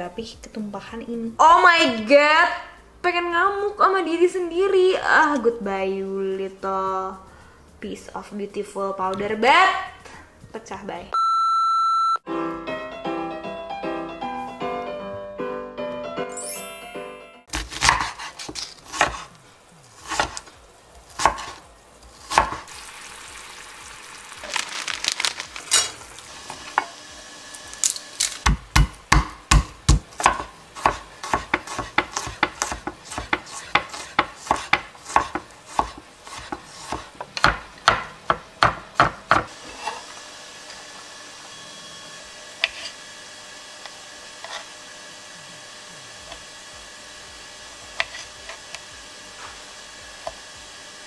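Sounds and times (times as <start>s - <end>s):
knife chopping on wooden board: 17.5s - 19.3s, 20.0s - 20.5s, 21.2s - 21.6s, 22.2s - 22.7s, 28.4s - 40.0s, 47.9s - 48.6s.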